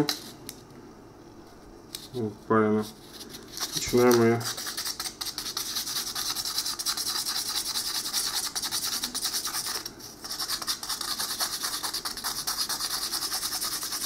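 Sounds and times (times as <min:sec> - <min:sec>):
sandpaper scratching on metal: 0:04.4 - 0:14.0.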